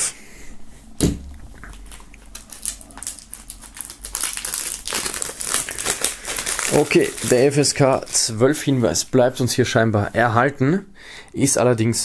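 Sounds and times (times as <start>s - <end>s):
plastic wrap crinkling: 1.4s - 9.1s.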